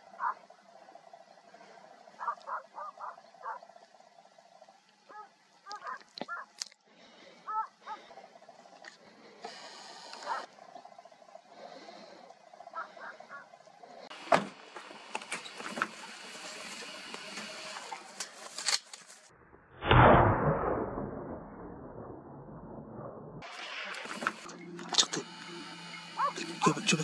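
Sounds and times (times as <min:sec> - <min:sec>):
distant dogs barking: 0:00.0 - 0:04.0, 0:05.0 - 0:08.7, 0:10.2 - 0:10.6, 0:11.7 - 0:13.6, 0:25.4 - 0:27.0
sharp clicks: 0:09.4 - 0:10.5.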